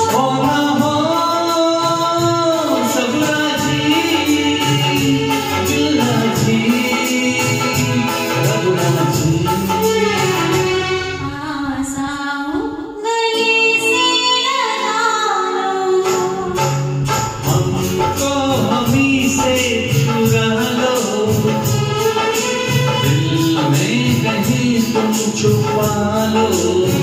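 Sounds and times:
man singing: 0.0 - 10.9, 16.4 - 27.0
instrumental accompaniment: 0.0 - 12.0, 13.0 - 27.0
woman singing: 9.9 - 16.9.

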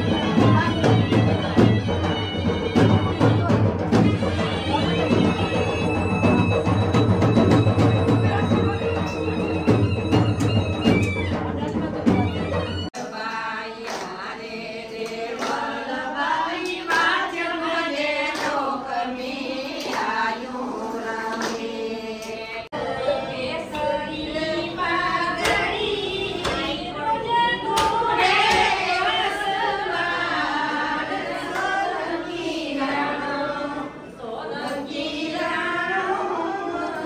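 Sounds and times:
women singing in unison: 0.0 - 5.4, 12.9 - 37.0
instrumental music: 0.0 - 13.0
hand claps: 13.0 - 14.3, 15.0 - 16.0, 16.6 - 17.3, 18.2 - 18.8, 19.7 - 20.2, 21.2 - 22.4, 26.4 - 26.8, 27.7 - 28.8.

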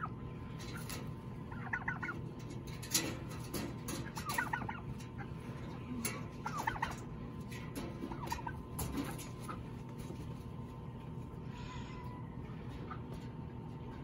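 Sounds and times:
turkey gobbling: 0.0 - 2.6, 4.0 - 10.0, 11.5 - 13.3.

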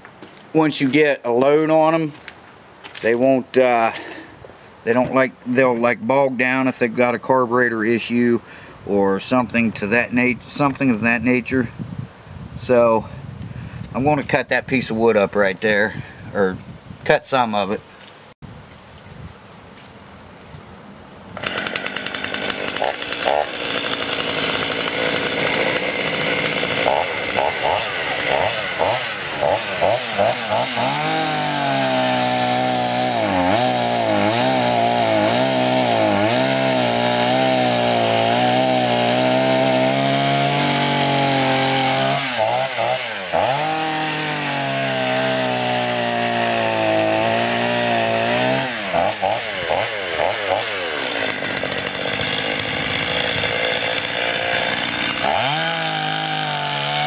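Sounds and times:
chainsaw cutting log: 21.4 - 57.0.

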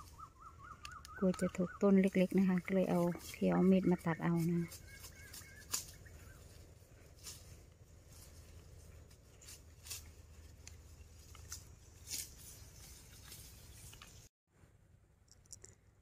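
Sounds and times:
sickle cutting grass stems: 0.0 - 14.3
faint low rumble: 5.8 - 12.0.

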